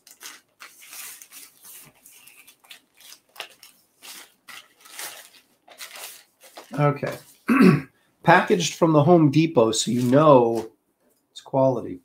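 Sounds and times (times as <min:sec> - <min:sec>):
plastic mailer bag crinkling: 0:00.0 - 0:07.3, 0:09.8 - 0:10.6.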